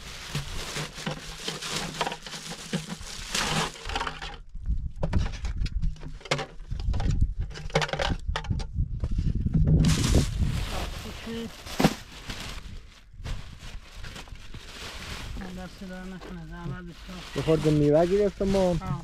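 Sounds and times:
plastic bag rustling: 0.0s - 4.5s, 9.8s - 19.0s.

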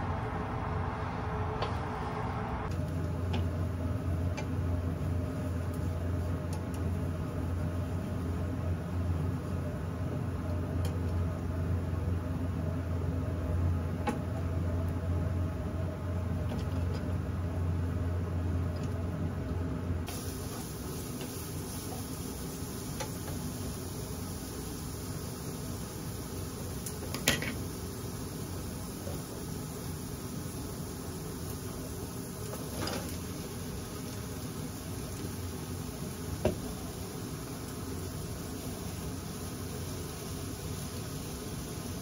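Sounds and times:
low hum of stir-frying: 0.0s - 42.0s
faint hiss: 20.0s - 42.0s.

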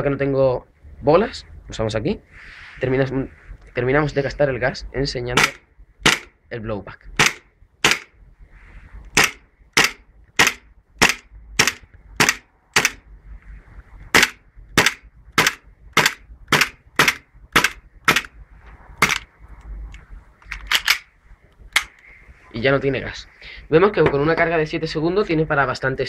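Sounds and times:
airsoft pistol shots: 5.4s - 6.3s, 7.2s - 8.1s, 9.2s - 13.0s, 14.1s - 18.3s.

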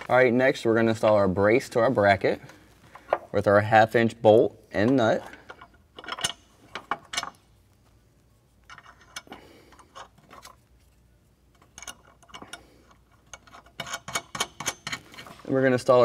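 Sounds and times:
nut clicking on bolt: 11.6s - 15.2s.

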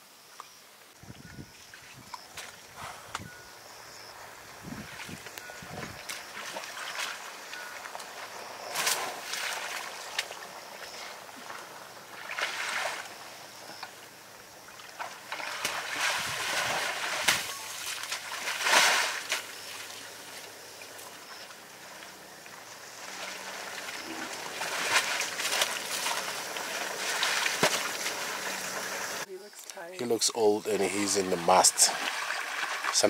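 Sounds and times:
elephant pulling grass from mud: 4.8s - 13.2s, 14.9s - 20.5s, 22.9s - 29.2s.

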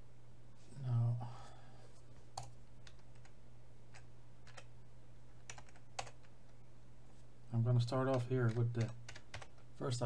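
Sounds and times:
computer keyboard keystrokes: 2.4s - 4.7s, 5.4s - 6.3s, 8.1s - 9.6s.

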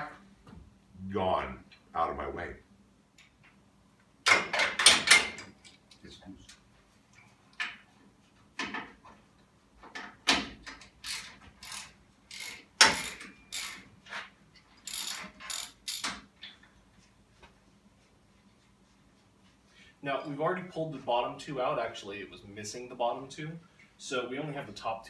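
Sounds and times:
ratchet wrench clicking: 11.0s - 13.8s, 14.8s - 16.2s.

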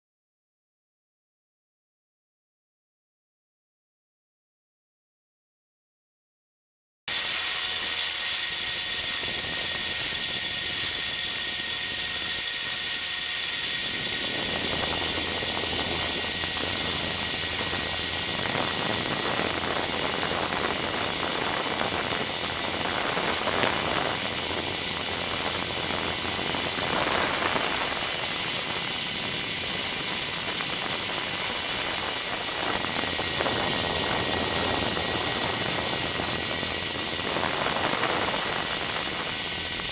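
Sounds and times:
electric motor whine: 7.1s - 39.9s
rotor wash rushing: 12.2s - 39.9s.

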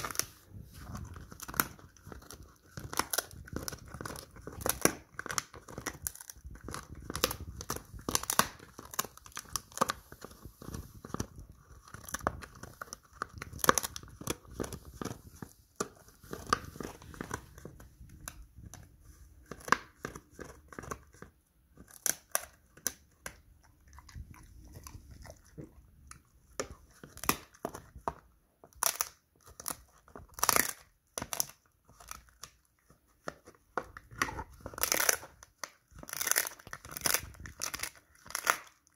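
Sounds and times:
dog chewing crunchy treat: 0.0s - 18.7s, 19.4s - 28.1s.

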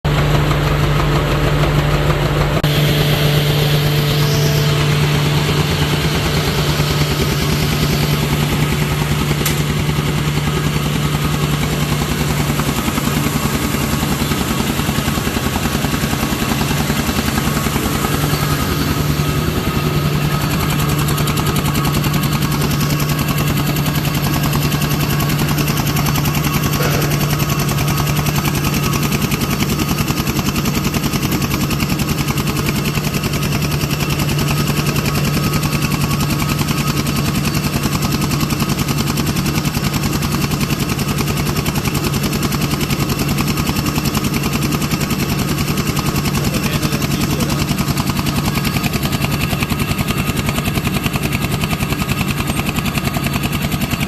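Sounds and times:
paper machine humming and clattering: 0.0s - 54.0s.

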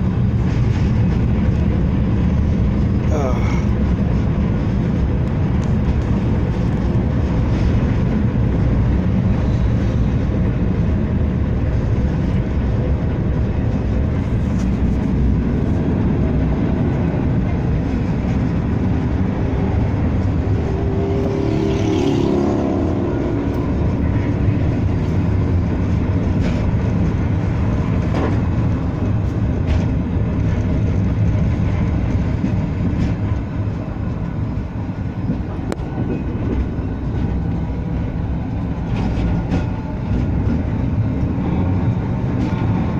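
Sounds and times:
high whine: 0.0s - 31.8s
tram rumbling: 0.0s - 42.9s.

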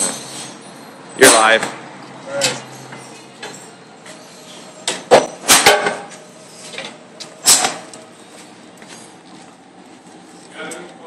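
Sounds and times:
metal clanks and knocks: 4.8s - 7.9s.

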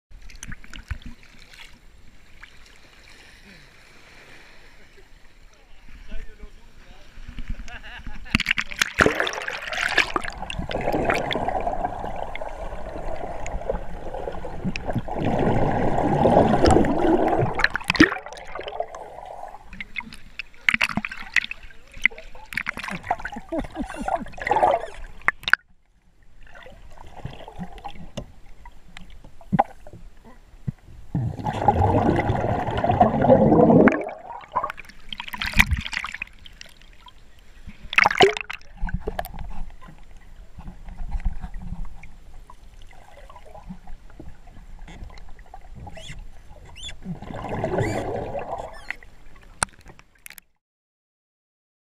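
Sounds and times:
muffled underwater rushing water: 0.1s - 50.4s.

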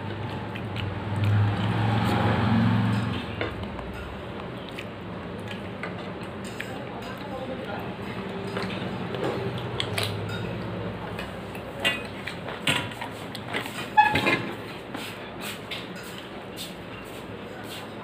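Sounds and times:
fingers mixing food: 0.0s - 2.5s, 3.5s - 13.8s.

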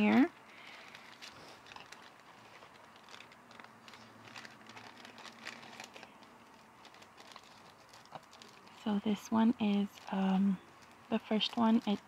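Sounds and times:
paper bag crinkling: 0.0s - 12.0s.

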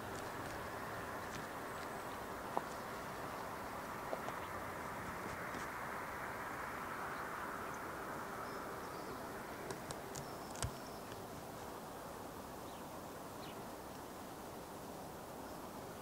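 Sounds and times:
passing road vehicle hiss: 0.0s - 10.1s
faint high bird chirps: 10.0s - 11.2s.

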